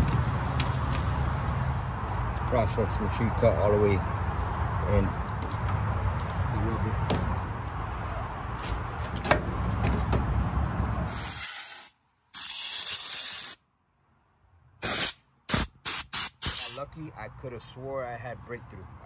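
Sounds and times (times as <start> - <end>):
outdoor rumble: 0.0 - 11.2
aerosol spray can hissing: 11.1 - 13.6, 14.8 - 16.8.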